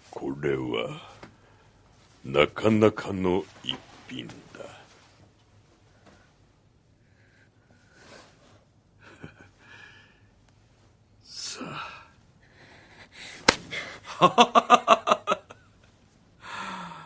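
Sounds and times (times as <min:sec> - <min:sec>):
breathy gasp: 0:16.4 - 0:17.0.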